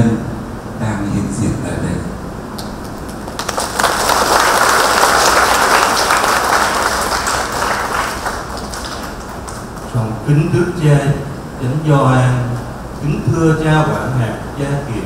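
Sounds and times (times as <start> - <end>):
congregation applauding: 2.6 - 9.9.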